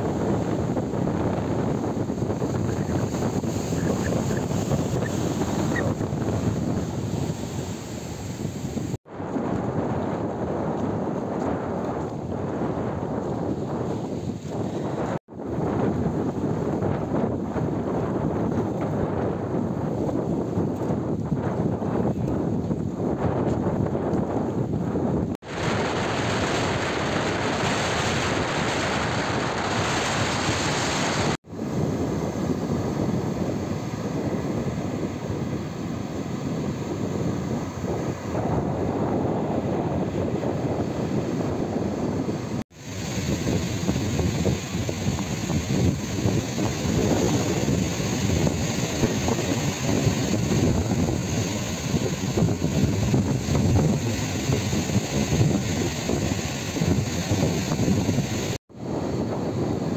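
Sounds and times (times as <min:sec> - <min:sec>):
waves breaking on shore: 0:00.0 - 0:09.8, 0:25.4 - 0:59.9
wind rushing over microphone: 0:00.0 - 0:59.9.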